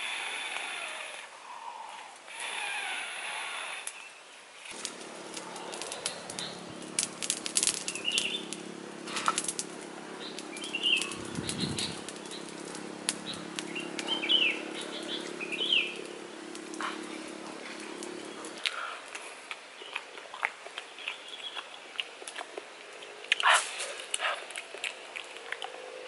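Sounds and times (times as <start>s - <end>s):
banana skin crackling as peeled: 3.8s - 26.0s
steady low hum: 4.6s - 19.0s.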